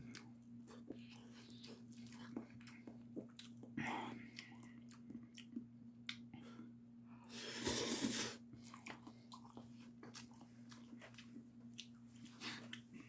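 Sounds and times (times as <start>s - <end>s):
faint low hum: 0.0s - 13.0s
chewing noodles wet clicks: 8.6s - 12.9s.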